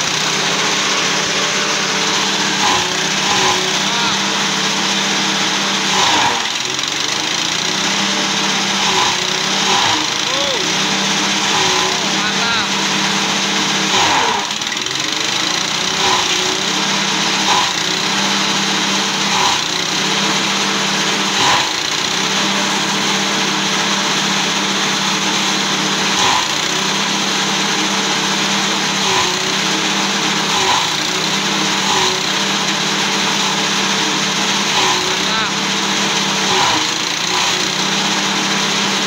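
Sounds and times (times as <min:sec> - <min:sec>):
small petrol engine running: 0:00.0 - 0:39.0
blades chopping stalks: 0:00.2 - 0:04.4.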